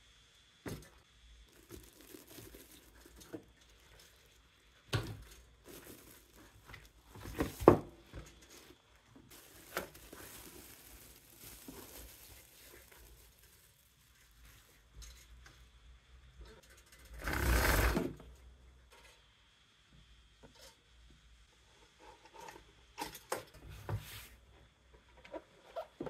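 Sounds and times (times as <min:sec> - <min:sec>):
plastic bag crinkling: 0:01.5 - 0:04.4, 0:05.1 - 0:07.8, 0:09.3 - 0:14.7.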